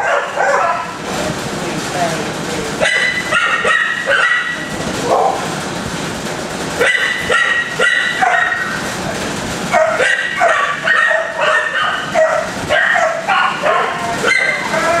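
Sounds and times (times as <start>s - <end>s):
dogs barking and yelping: 0.0s - 1.0s, 2.8s - 5.6s, 6.8s - 8.9s, 9.7s - 15.0s.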